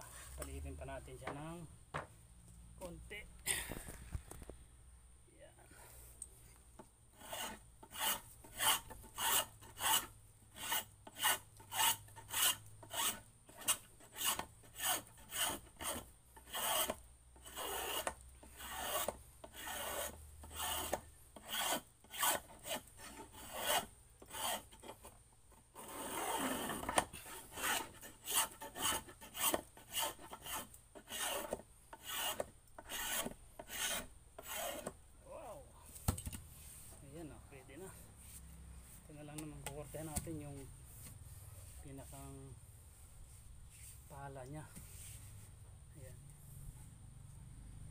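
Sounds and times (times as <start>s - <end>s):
hand tool scraping wood: 0.0s - 1.5s, 5.7s - 35.0s.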